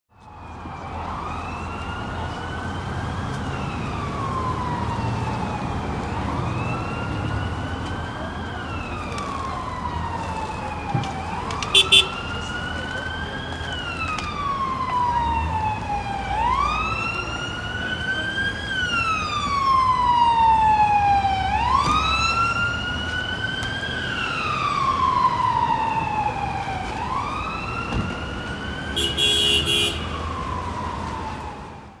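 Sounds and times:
city traffic: 0.1 - 32.0
emergency siren wailing: 0.1 - 32.0
vehicle horn blast: 11.8 - 12.1, 29.0 - 30.2.

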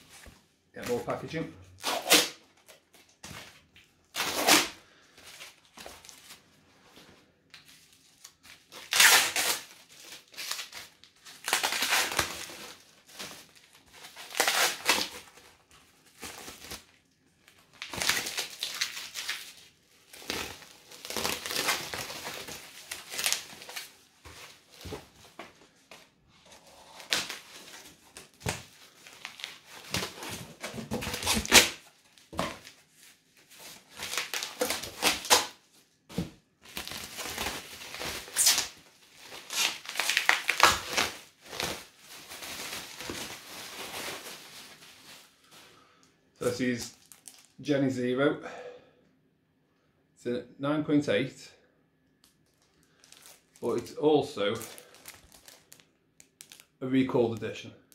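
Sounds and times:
packaging crinkling and tearing: 7.5 - 25.5, 26.5 - 45.7, 46.4 - 47.6, 52.2 - 53.9, 54.5 - 57.5.

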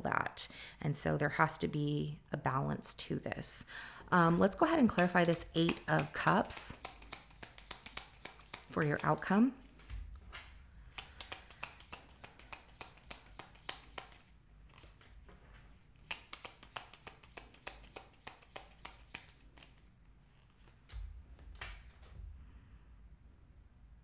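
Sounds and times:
tarot cards being shuffled: 4.7 - 9.9, 10.8 - 15.3, 15.9 - 22.0.

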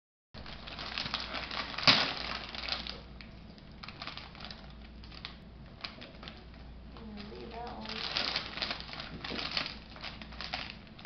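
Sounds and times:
wrapping paper tearing and crinkling: 0.4 - 3.2, 3.8 - 11.0.

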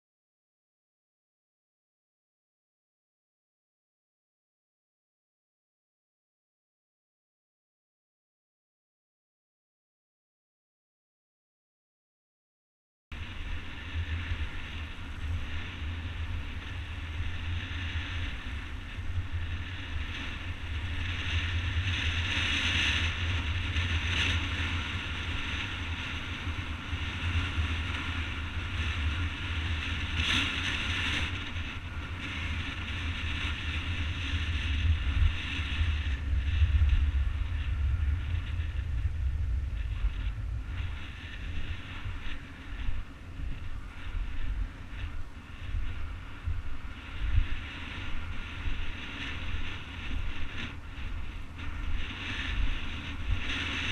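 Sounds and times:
wind buffeting microphone: 13.1 - 53.9
skate wheels rolling over asphalt: 13.2 - 53.9.

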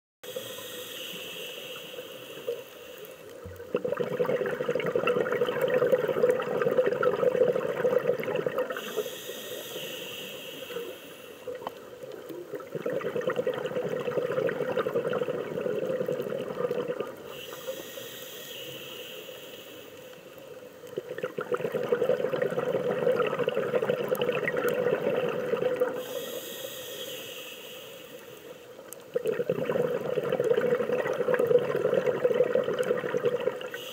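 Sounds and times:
regulator hissing inhale: 0.2 - 3.5, 8.7 - 12.3, 17.2 - 20.6, 26.0 - 29.0
exhaled bubbles rushing: 3.5 - 8.8, 12.4 - 17.2, 21.0 - 26.0, 29.1 - 33.8.

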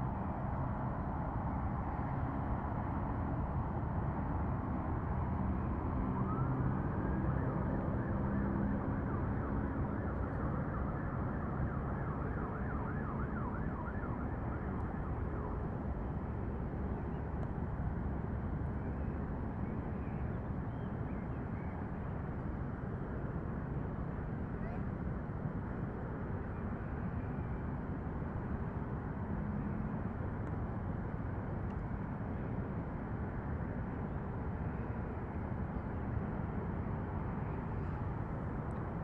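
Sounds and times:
faint siren wailing: 4.9 - 17.4.

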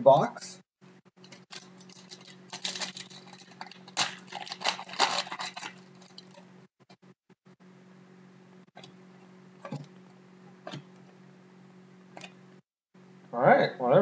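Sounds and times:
cards rustling: 1.2 - 6.4
wrapper crinkling as torn open: 1.2 - 6.4.

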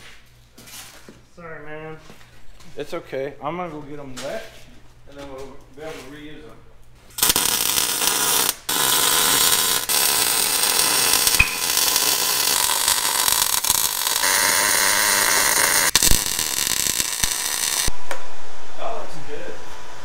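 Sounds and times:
welding arc crackling hiss: 7.1 - 17.9.

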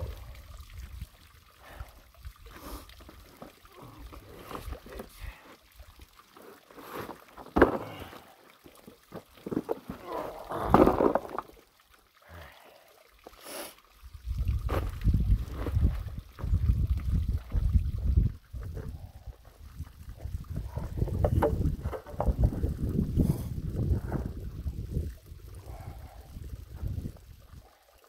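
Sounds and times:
wind rumble on microphone: 14.1 - 27.7.

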